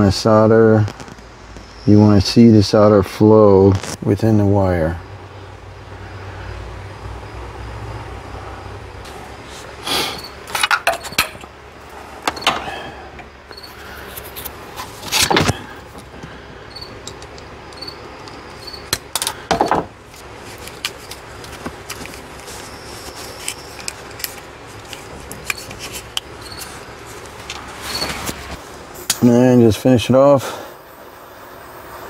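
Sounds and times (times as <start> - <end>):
handling clicks and rattles: 20.1 - 27.7.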